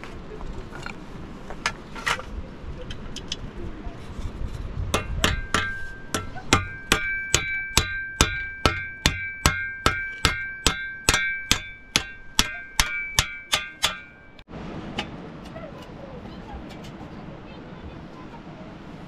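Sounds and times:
hammer striking steel shovel: 5.0s - 14.4s.

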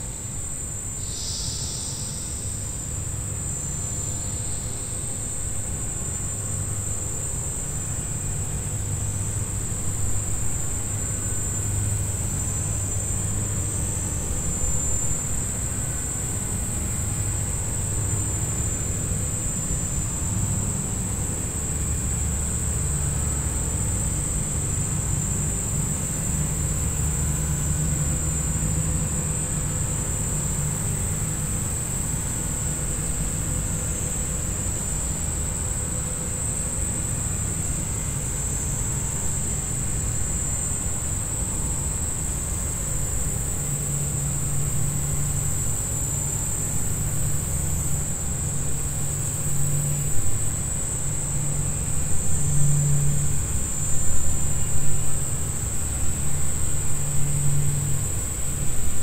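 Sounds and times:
high-pitched insect drone: 0.1s - 59.0s.

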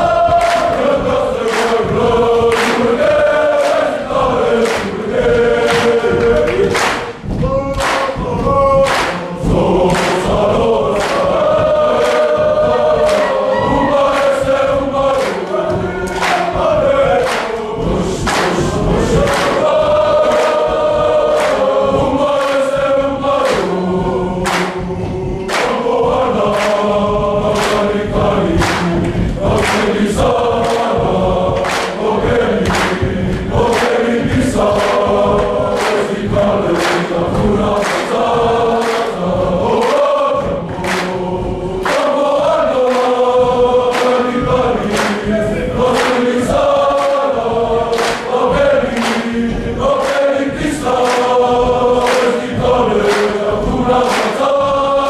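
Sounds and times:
group singing in chorus: 0.0s - 55.0s.

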